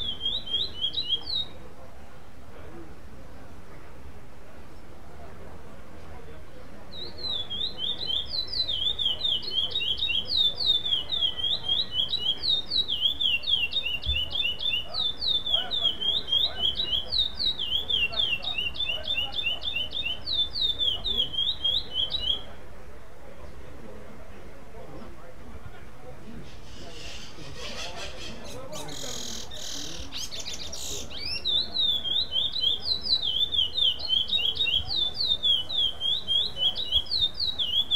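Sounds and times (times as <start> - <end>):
finch singing whistled notes: 0.0 - 1.6, 6.9 - 22.6, 26.5 - 37.9.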